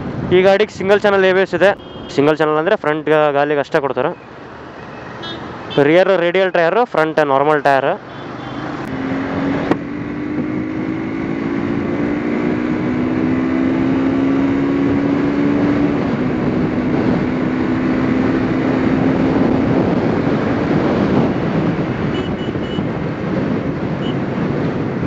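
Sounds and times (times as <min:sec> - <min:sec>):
motorcycle engine accelerating: 0:08.2 - 0:25.0
wind on microphone: 0:08.8 - 0:25.0.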